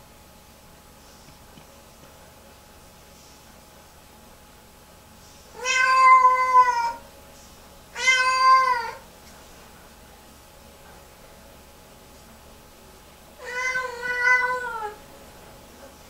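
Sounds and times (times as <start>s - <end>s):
cat meowing loudly: 5.6s - 7.0s, 8.0s - 9.0s, 13.4s - 15.0s.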